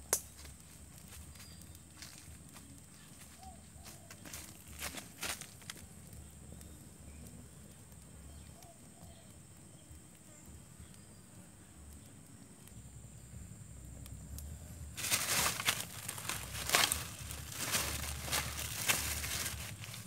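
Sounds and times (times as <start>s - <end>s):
small fire ticking: 0.0s - 20.0s
plastic bag rustling: 15.0s - 20.0s.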